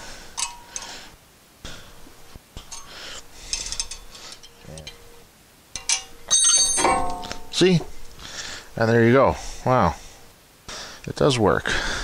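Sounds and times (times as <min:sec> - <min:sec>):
metal clicks and scraping: 0:02.6 - 0:05.0, 0:05.7 - 0:08.1.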